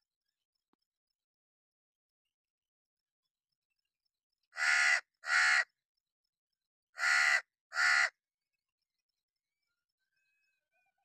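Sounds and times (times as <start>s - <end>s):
crow cawing: 4.6s - 5.7s, 7.0s - 8.2s.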